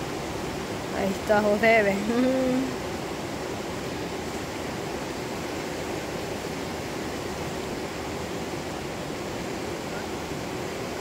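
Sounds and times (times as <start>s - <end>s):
river rushing around rocks: 0.0s - 11.0s.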